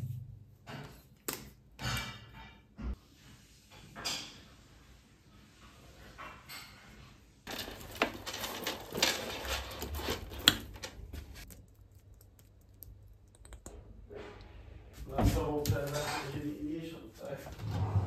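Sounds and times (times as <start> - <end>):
packaging crinkling: 7.5 - 13.1.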